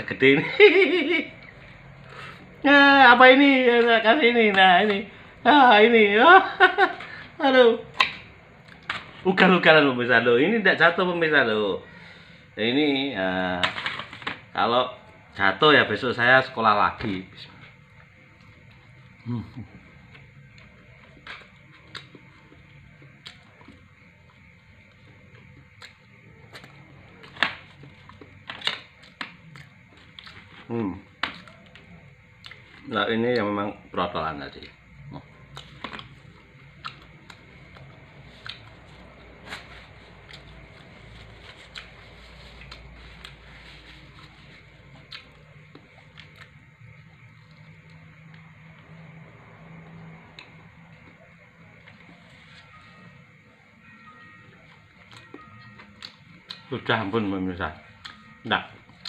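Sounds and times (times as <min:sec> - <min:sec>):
quiet chewing: 0:35.2 - 0:43.4.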